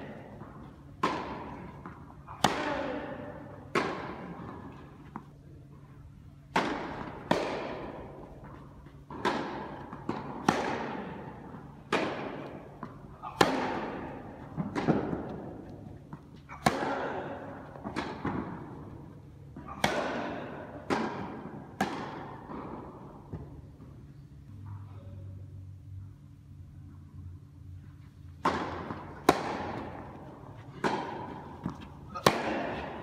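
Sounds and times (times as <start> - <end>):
racket striking tennis ball: 0.1 - 5.3, 6.4 - 23.5, 28.4 - 33.0
ball bouncing on court: 11.9 - 18.8.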